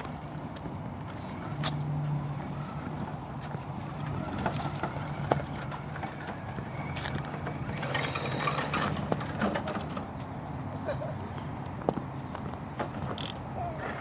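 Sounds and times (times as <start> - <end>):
rc truck motor whirring: 1.1 - 9.4.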